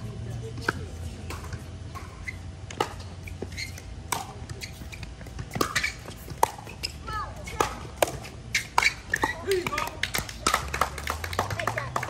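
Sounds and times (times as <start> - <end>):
ball bouncing on hard court: 2.7 - 10.5
paddles hitting plastic ball: 7.5 - 12.0.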